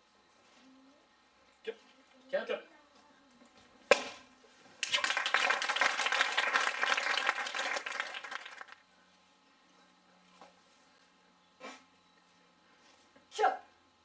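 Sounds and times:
audience applause: 4.8 - 8.8.

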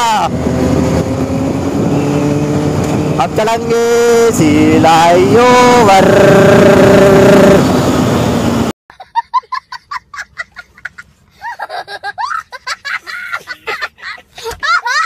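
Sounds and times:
motorcycle riding noise: 0.0 - 8.7
young child laughing: 8.9 - 15.0.

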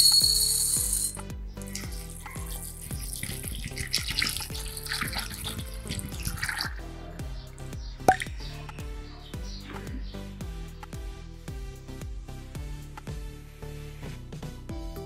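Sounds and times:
water splashing onto chickpeas: 1.6 - 6.8.

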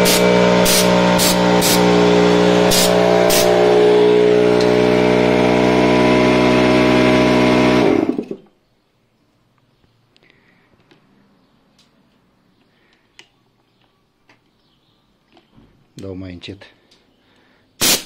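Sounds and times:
compressed air hissing blasts: 0.0 - 3.8, 17.8 - 18.0
air compressor running: 0.0 - 8.5, 17.8 - 18.0.

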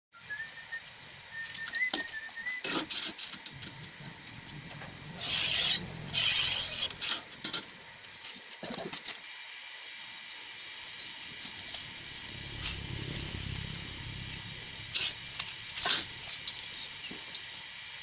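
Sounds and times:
thin wavering whistle: 0.2 - 2.7.

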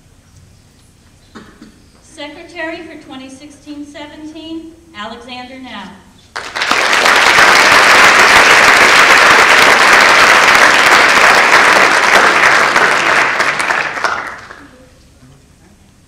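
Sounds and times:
audience applauding: 6.3 - 14.8.

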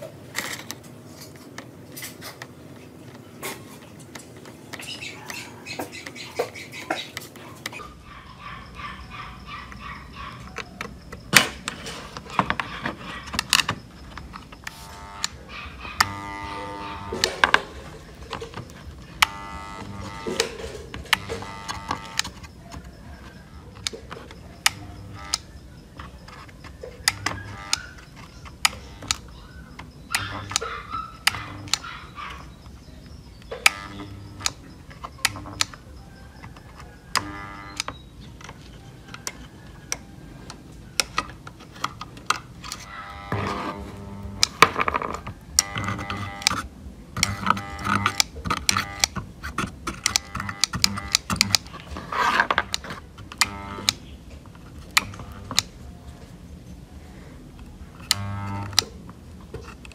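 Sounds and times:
clicks and taps handling circuit board: 18.3 - 30.7, 32.6 - 55.8.

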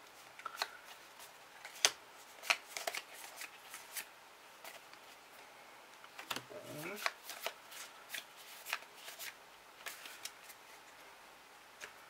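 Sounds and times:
trading cards flipped by hand: 1.6 - 4.8, 6.2 - 10.6.

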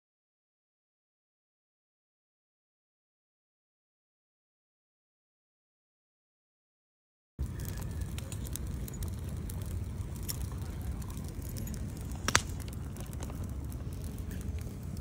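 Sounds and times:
bonfire crackling and popping: 7.4 - 15.0
fire low rush: 7.4 - 15.0
sharp crack of fire: 7.4 - 15.0.

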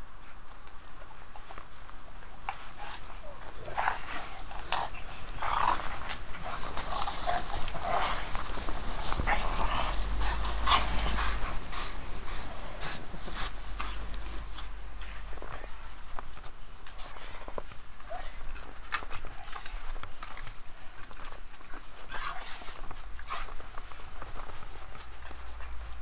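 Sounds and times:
scuffling in snow: 0.2 - 18.4.

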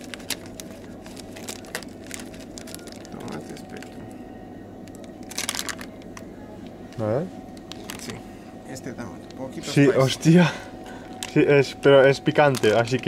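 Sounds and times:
foil packaging crinkle: 0.0 - 4.2, 4.8 - 6.3, 7.4 - 8.3, 9.1 - 13.0
steady low hum: 0.0 - 13.0.

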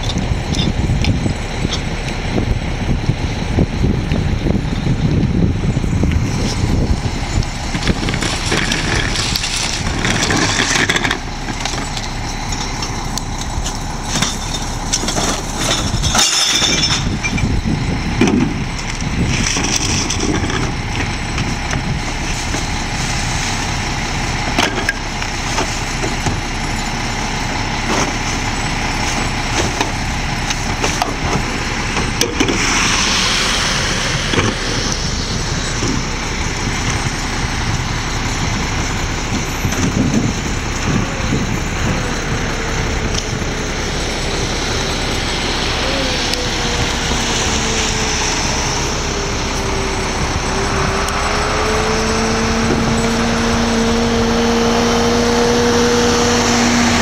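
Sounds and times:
garbage truck engine running: 0.0 - 57.0.

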